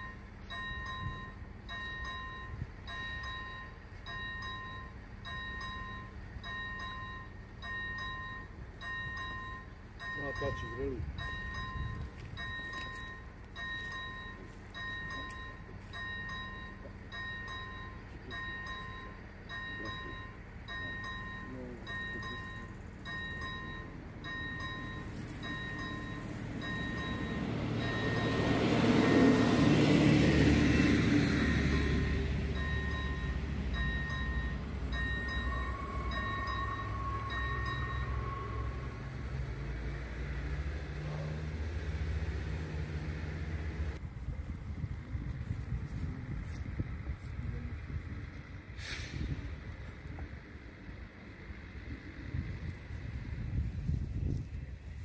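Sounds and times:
level crossing warning bell: 0:00.0 - 0:41.4
low train rumble: 0:00.0 - 0:55.0.

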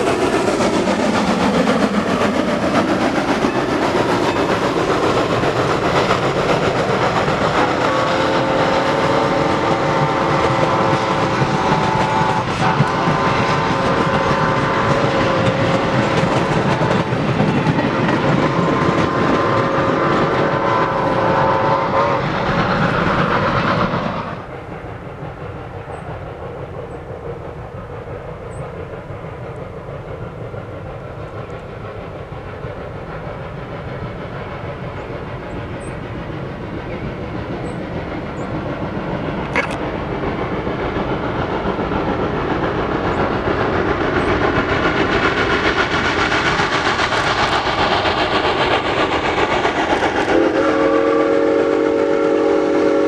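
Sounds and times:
train wheels clicking over rail joints: 0:00.0 - 0:53.0
steam locomotive whistle: 0:07.5 - 0:22.8, 0:49.6 - 0:53.0.

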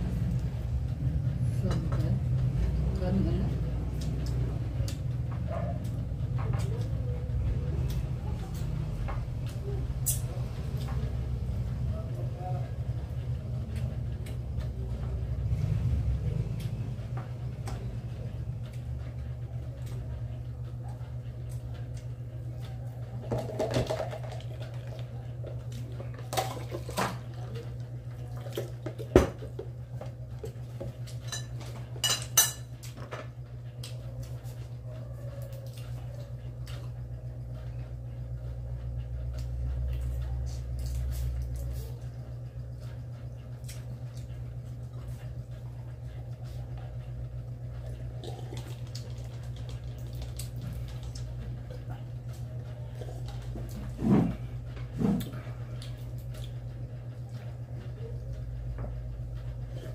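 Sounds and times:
steady low hum: 0:00.0 - 0:59.9
plates spoons and cups clinking: 0:31.2 - 0:32.7.

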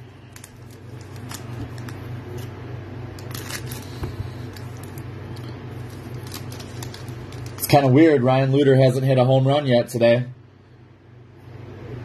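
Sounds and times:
plastic wrapper crinkling and tearing: 0:00.0 - 0:07.8
steady low hum: 0:00.0 - 0:12.0.

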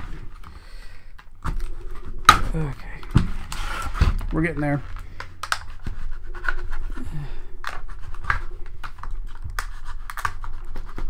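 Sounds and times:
knife cutting plastic: 0:07.6 - 0:11.0.

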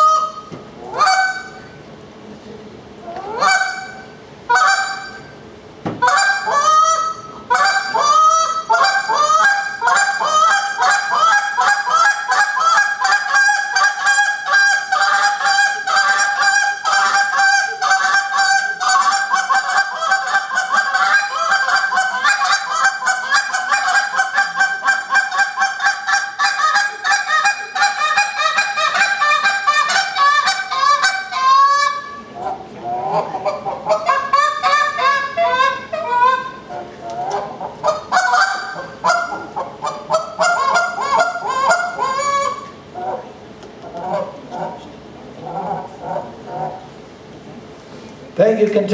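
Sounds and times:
goose call honks and clucks: 0:00.0 - 0:01.8, 0:03.0 - 0:05.3, 0:06.0 - 0:44.8.

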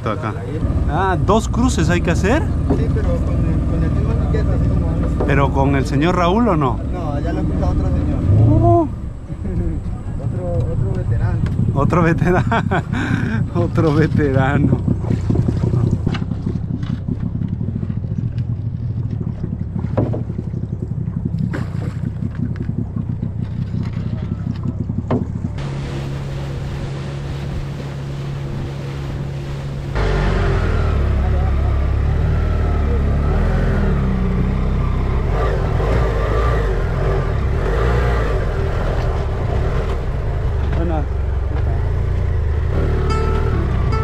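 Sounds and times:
boat motor rumbling: 0:00.0 - 0:44.0
engine running with low drone: 0:00.0 - 0:44.0
wind buffeting microphone: 0:07.6 - 0:30.0.

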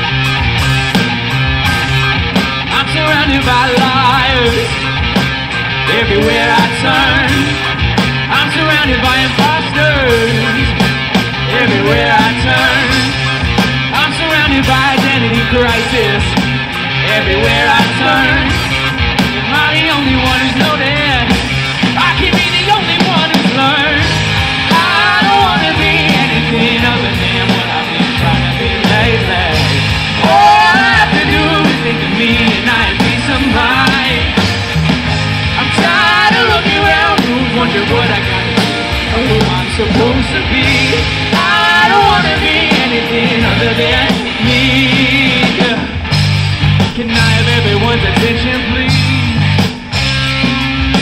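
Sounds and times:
live rock band playing: 0:00.0 - 0:51.0
person singing: 0:05.8 - 0:07.7, 0:08.3 - 0:13.2, 0:17.0 - 0:18.7, 0:22.0 - 0:34.6, 0:35.5 - 0:46.0, 0:46.8 - 0:49.6.

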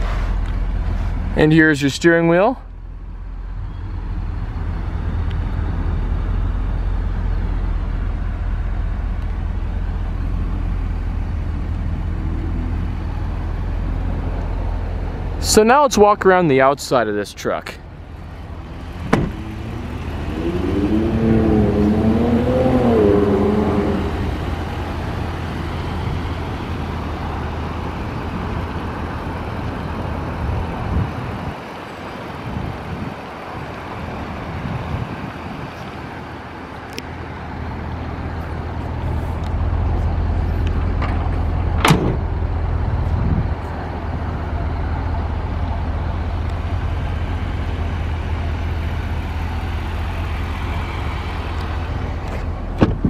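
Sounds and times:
pickup engine idling: 0:02.7 - 0:53.0
sharp knock: 0:19.1 - 0:19.4.

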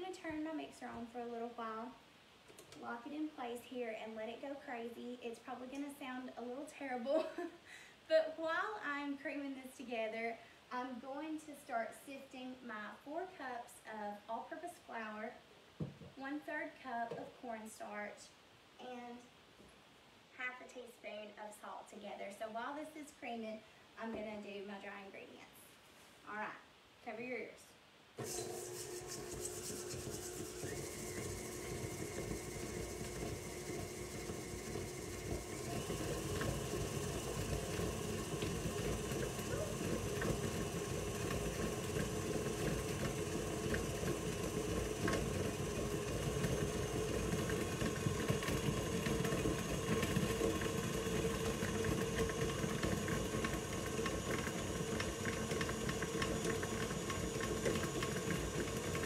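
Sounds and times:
stand mixer running: 0:28.2 - 0:59.0.

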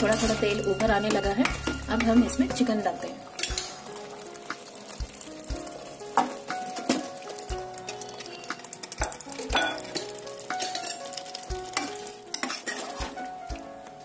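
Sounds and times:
chicken sizzling in hot oil: 0:00.0 - 0:14.0
spatula stirring in pot: 0:03.4 - 0:14.0.

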